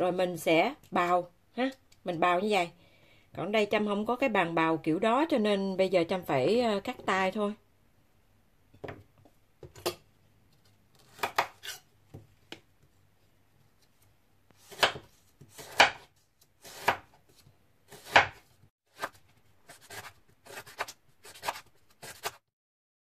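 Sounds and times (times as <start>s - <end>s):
knife chopping on wooden board: 11.0s - 12.6s, 14.6s - 17.2s, 17.9s - 22.4s.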